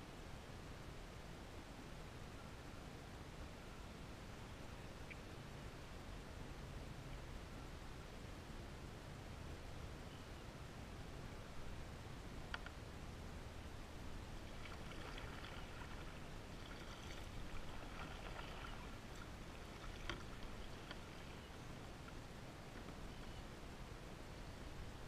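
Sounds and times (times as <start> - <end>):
water lapping around kayak: 14.0 - 23.3.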